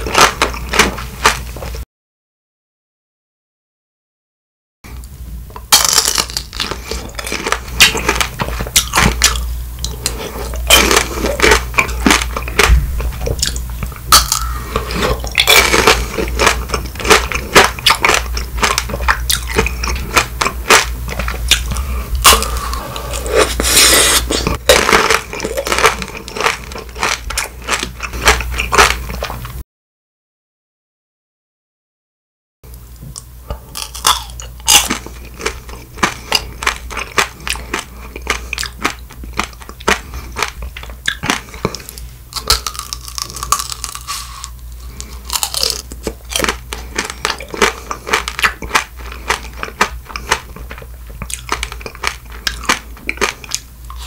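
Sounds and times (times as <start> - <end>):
candy shell crunching: 5.6 - 29.4, 33.7 - 54.0.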